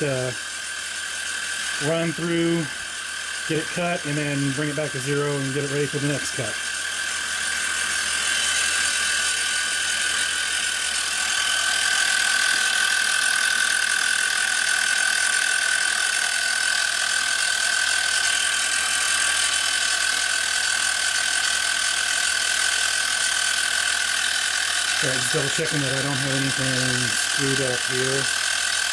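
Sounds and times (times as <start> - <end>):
milling machine spindle whine: 0.0 - 28.9.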